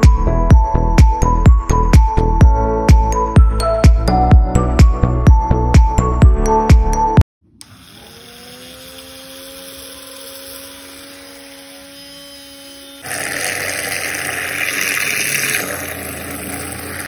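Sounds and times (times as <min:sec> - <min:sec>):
small motor whining: 0:07.5 - 0:17.0
liquid sloshing: 0:13.0 - 0:17.0
whisk churning liquid: 0:13.0 - 0:17.0.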